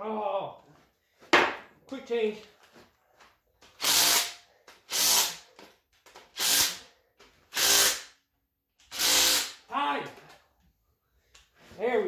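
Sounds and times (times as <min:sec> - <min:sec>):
impact wrench bursts: 0:03.8 - 0:05.6, 0:06.2 - 0:06.9, 0:07.5 - 0:08.2, 0:08.8 - 0:09.7.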